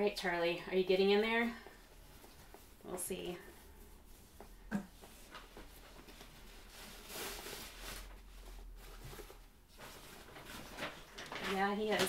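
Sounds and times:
cloth bag rustling open: 5.3 - 12.0.

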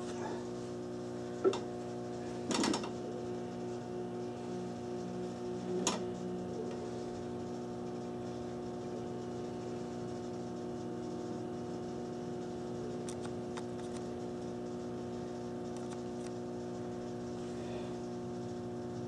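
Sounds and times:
light fixture motors humming: 0.0 - 19.0.

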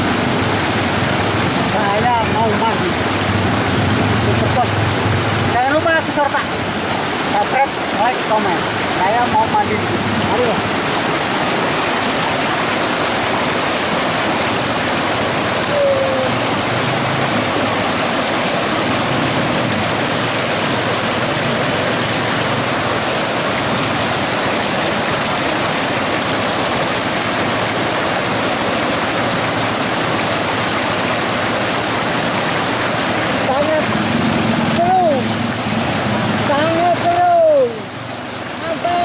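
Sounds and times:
river rapids rushing over rocks: 0.0 - 39.0.

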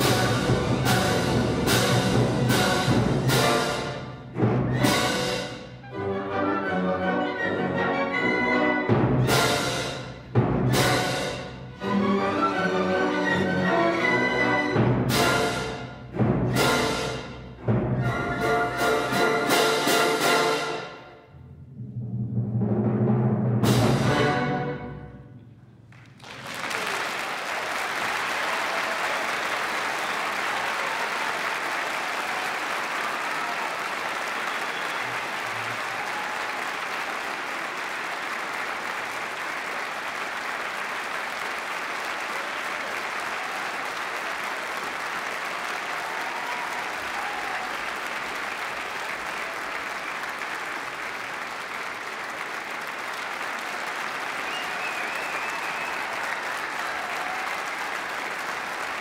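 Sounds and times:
audience applause: 25.9 - 59.0.

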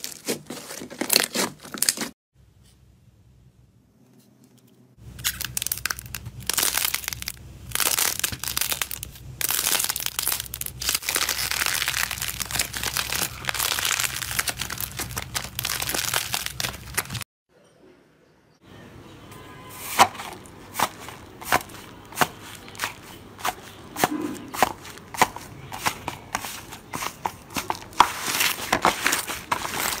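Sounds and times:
slime crackling and popping: 5.1 - 17.2.

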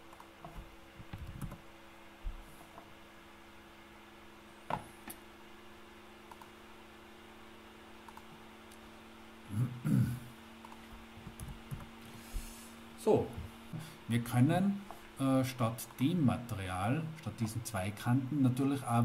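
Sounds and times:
low electrical hum: 0.0 - 19.0
computer mouse clicks: 0.1 - 1.6, 6.3 - 6.5, 8.0 - 8.8, 10.6 - 11.9.

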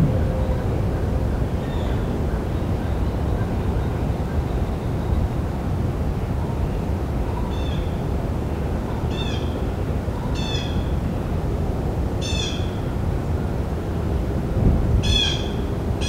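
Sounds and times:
low background rumble: 0.0 - 12.2.

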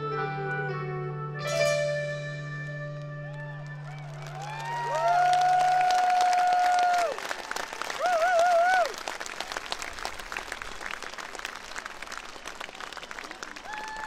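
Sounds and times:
crowd applauding: 3.2 - 14.0.

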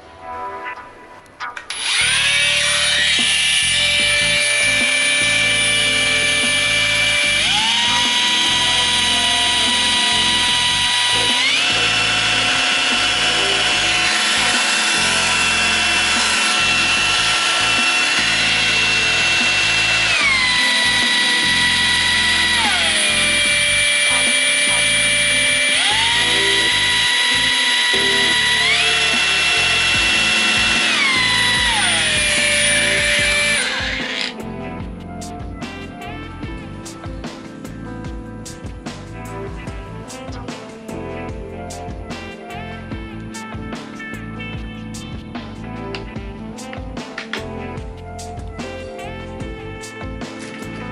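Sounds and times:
angle grinder whining: 1.7 - 34.4.

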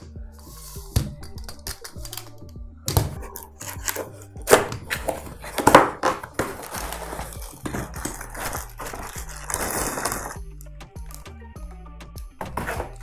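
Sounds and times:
quiet background music: 0.0 - 13.0
plastic wrapping rustling: 3.3 - 10.4
cardboard scraping and knocking: 3.7 - 10.4, 12.4 - 13.0.

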